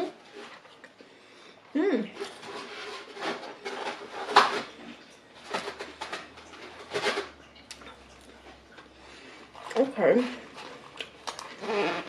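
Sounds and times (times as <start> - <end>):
chewing and mouth sounds: 7.4 - 11.8.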